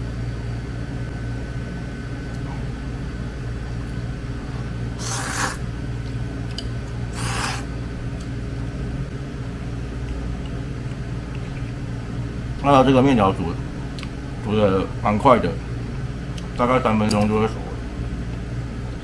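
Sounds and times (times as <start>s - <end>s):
person slurping noodles: 5.0s - 5.6s, 7.1s - 7.7s.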